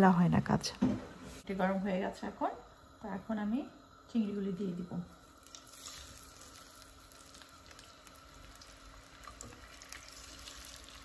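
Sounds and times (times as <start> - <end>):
prawns sizzling in oil: 1.2 - 11.0
small oil crackles: 5.1 - 11.0.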